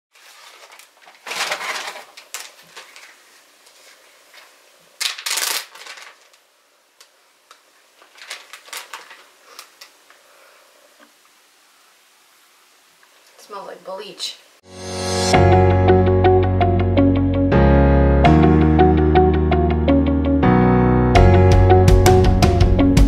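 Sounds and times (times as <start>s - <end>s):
plastic bag crinkling: 0.1s - 10.2s
small crackles and clicks: 0.2s - 6.4s, 7.0s - 10.2s.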